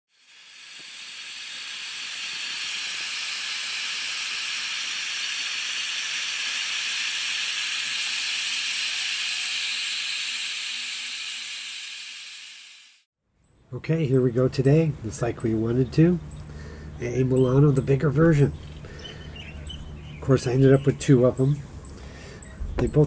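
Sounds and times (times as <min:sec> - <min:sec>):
steam hissing: 0:00.1 - 0:13.1.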